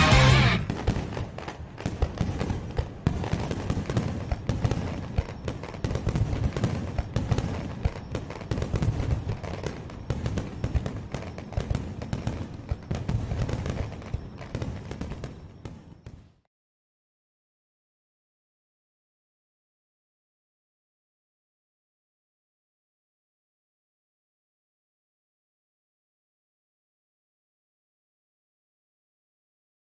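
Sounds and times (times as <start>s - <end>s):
fireworks crackling bangs: 0.0s - 16.5s
low fireworks booms: 0.0s - 16.5s.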